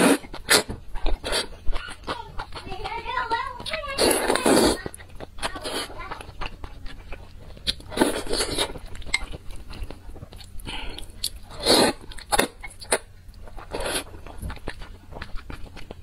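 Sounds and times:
loud mouth sounds: 0.0 - 2.6, 3.9 - 6.6, 10.6 - 13.0
person chewing noodles: 0.0 - 16.0.

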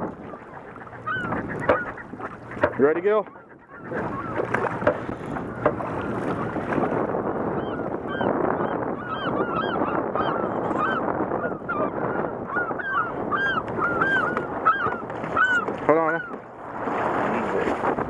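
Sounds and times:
birds honking: 0.0 - 6.7, 7.4 - 16.5
wind and water rushing: 0.0 - 18.0.

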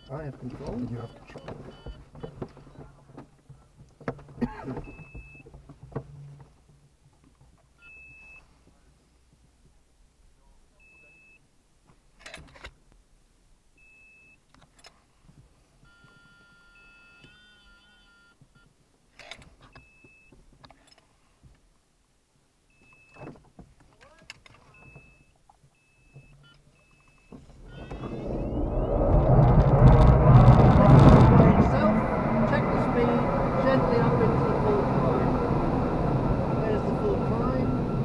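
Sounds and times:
short electronic beep: 24.8 - 29.3.

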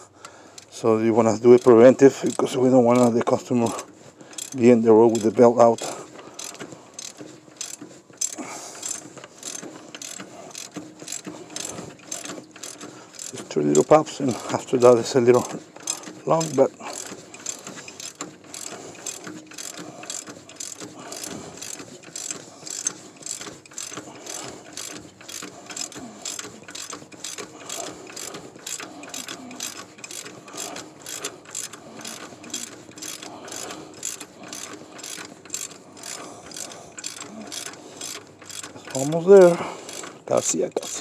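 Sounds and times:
hand ratchet clicking: 0.2 - 41.0.

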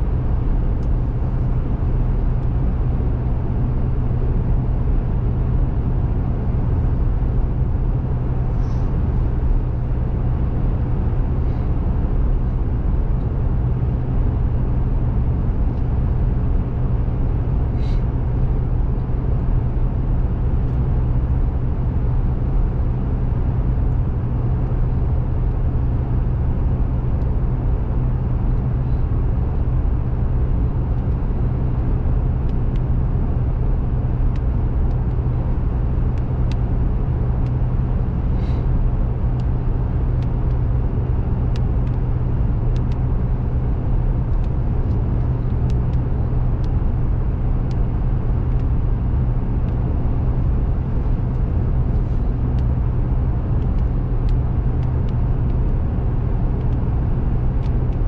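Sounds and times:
car engine and tyre hum: 0.0 - 58.0
light ticks: 36.2 - 36.6, 41.5 - 42.0, 42.7 - 43.0, 44.3 - 46.8, 47.7 - 48.8, 57.6 - 58.0.

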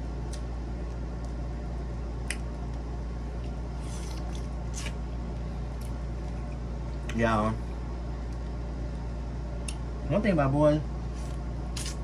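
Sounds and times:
steady low hum: 0.0 - 12.0
wet squishy eating: 2.4 - 5.1.

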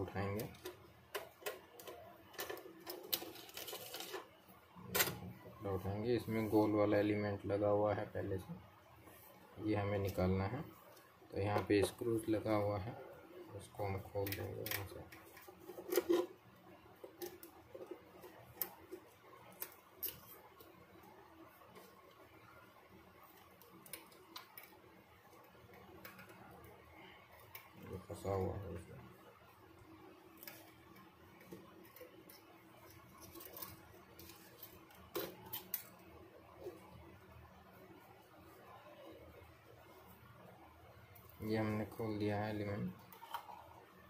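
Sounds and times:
faint metal clicks and scrapes: 0.3 - 5.3, 13.9 - 22.2, 30.3 - 37.0, 42.6 - 44.0.

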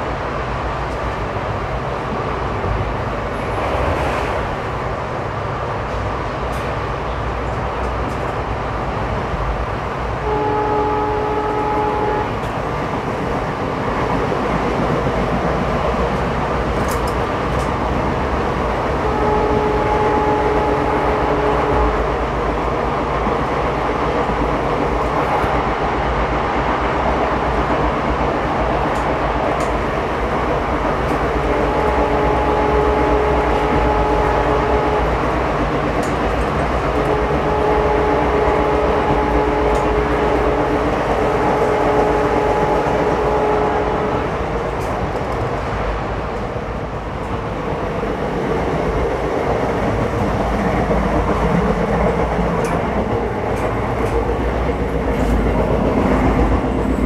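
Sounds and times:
train coach rumbling on track: 0.0 - 57.0
multi-pitched horn tone: 10.2 - 12.3, 19.0 - 22.1, 31.6 - 35.3, 37.0 - 44.3.

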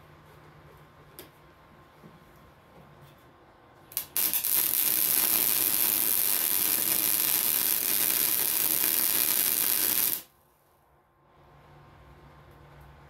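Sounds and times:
welding arc hissing: 4.0 - 10.3.

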